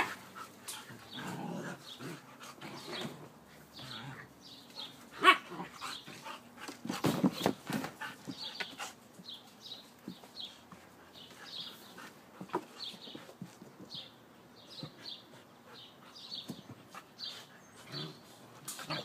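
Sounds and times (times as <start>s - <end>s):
dog grumbling: 1.1s - 4.3s.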